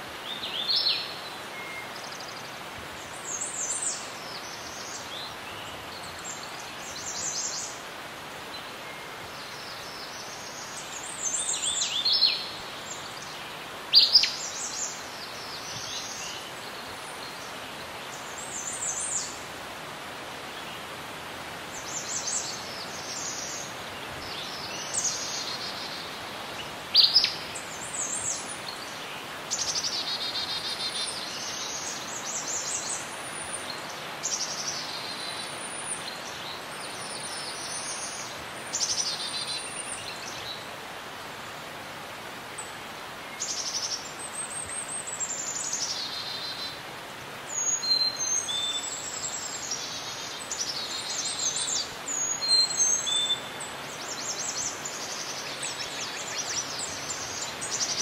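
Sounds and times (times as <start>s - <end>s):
steady background hiss: 0.0s - 58.0s
birds singing and calling: 8.6s - 19.4s, 21.8s - 40.7s, 42.6s - 58.0s.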